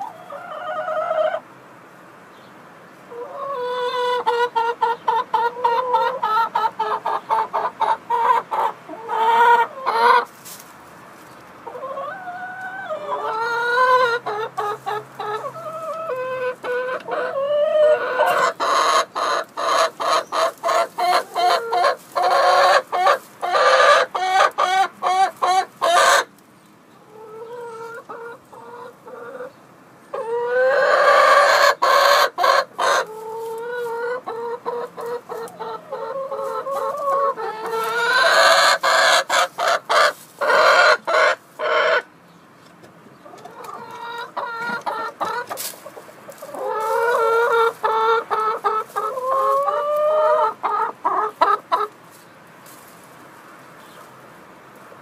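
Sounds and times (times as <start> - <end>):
hens clucking: 0.0 - 1.5, 2.9 - 55.0
hen drawn-out calls: 11.6 - 26.3, 30.1 - 42.1, 43.2 - 52.0.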